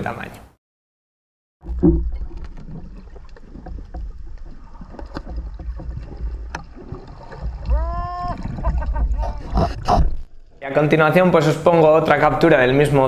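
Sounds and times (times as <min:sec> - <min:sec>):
underwater rumble of moving water: 0:01.6 - 0:13.0
small underwater clicks: 0:01.7 - 0:07.8.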